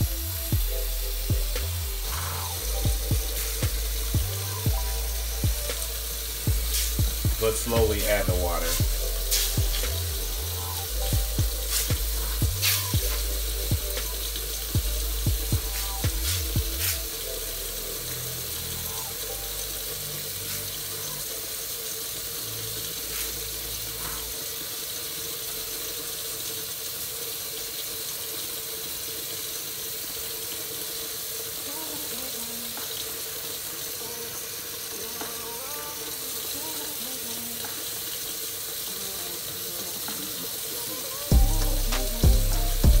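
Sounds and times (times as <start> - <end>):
gravy sizzling and simmering: 0.0 - 43.0.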